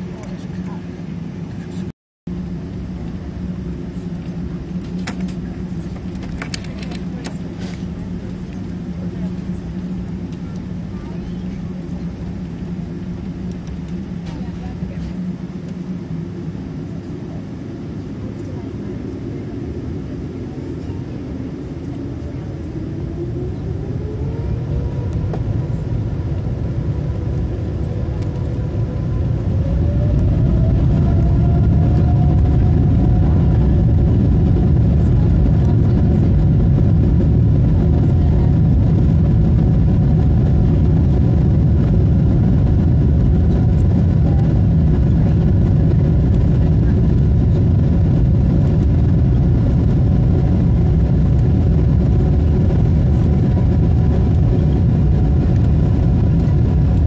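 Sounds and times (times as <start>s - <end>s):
jet engines spooling up: 18.5s - 57.0s.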